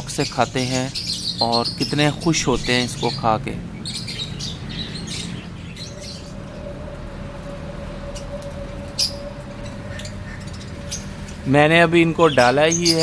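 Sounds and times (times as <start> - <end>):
budgerigars chirping: 0.0 - 6.4, 9.0 - 13.0
steady low hum: 0.0 - 13.0
faint steady tone: 5.8 - 12.1.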